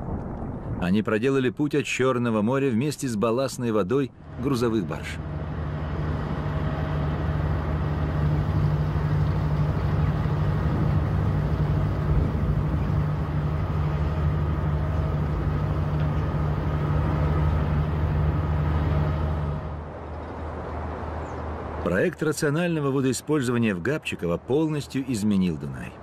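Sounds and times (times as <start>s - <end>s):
tug engine droning: 4.2s - 21.8s.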